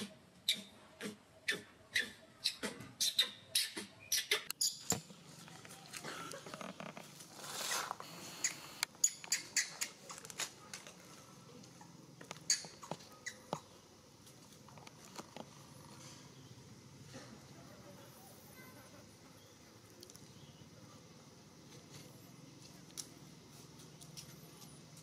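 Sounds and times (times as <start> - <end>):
baby monkey squeaking: 1.5 - 5.0, 8.4 - 10.0, 12.4 - 13.7.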